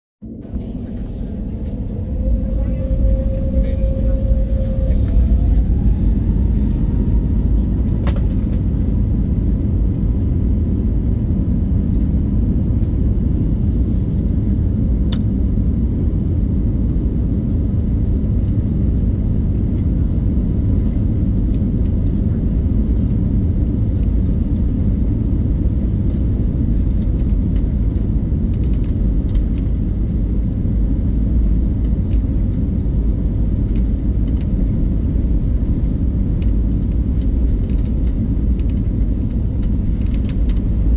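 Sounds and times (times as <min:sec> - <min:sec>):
low cabin rumble: 0:00.2 - 0:40.9
faint steady whine: 0:00.3 - 0:08.7.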